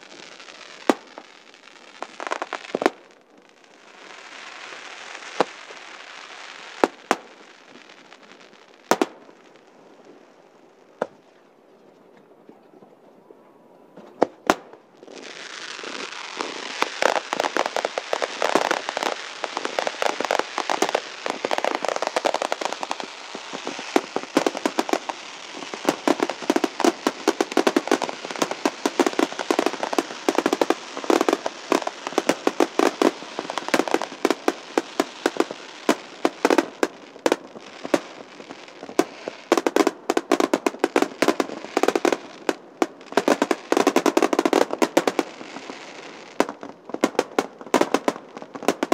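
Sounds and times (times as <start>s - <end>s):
fireworks crackle and hiss: 0.0s - 11.2s, 14.0s - 48.9s
firework shells bursting: 15.8s - 38.2s.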